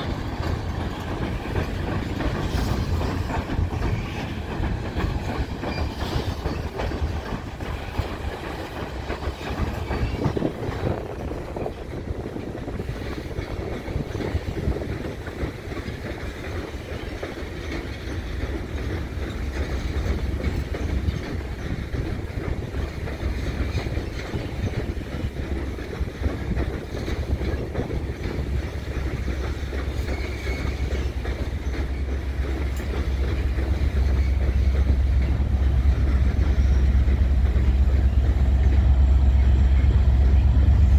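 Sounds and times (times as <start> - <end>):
diesel locomotive rumble: 0.0 - 40.9
train wheels clicking over rail joints: 0.0 - 40.9.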